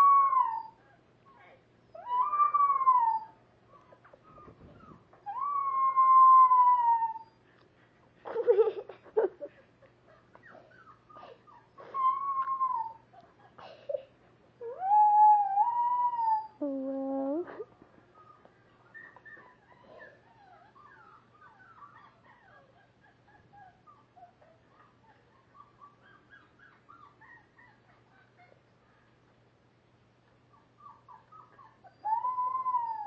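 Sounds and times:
dog howling: 0:00.0 - 0:00.8, 0:02.0 - 0:03.4, 0:05.2 - 0:07.4, 0:14.6 - 0:16.6, 0:31.9 - 0:33.0.

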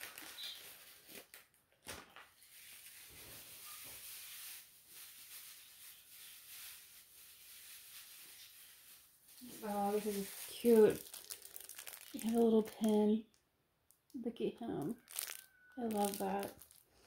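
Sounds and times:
plastic packaging rustling: 0:00.0 - 0:17.0.

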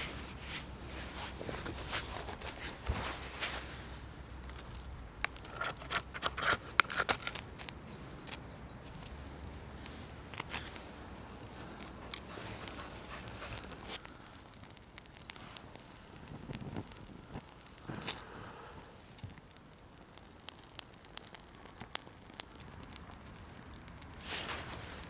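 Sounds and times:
dry tinder rustling: 0:00.0 - 0:16.0, 0:24.1 - 0:25.0
tinder crackling: 0:00.0 - 0:25.0.

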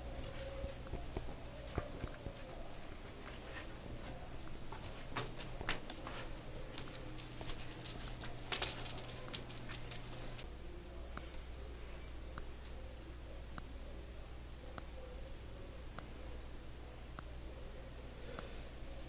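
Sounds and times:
footsteps on debris-covered floorboards: 0:03.1 - 0:10.4.

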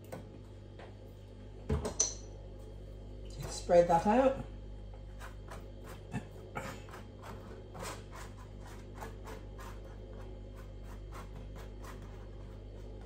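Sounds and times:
knife scraping relish on bread: 0:05.1 - 0:13.0.

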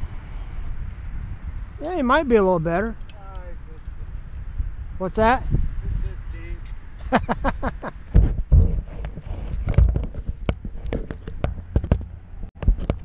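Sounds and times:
thumps on microphone: 0:08.1 - 0:13.0.

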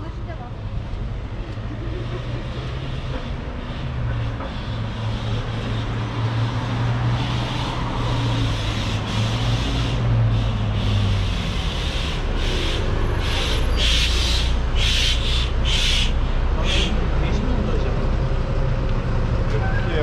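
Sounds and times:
street noise hiss: 0:00.0 - 0:19.4
vehicle engine humming: 0:00.0 - 0:20.0.

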